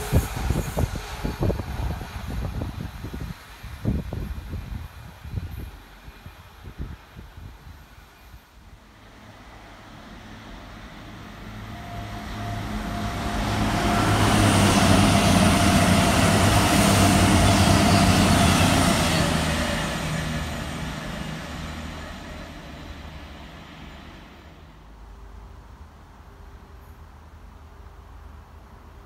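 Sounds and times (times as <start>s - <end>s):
diesel engine drone: 8.9s - 24.9s
high tone dropping in pitch: 11.6s - 15.5s.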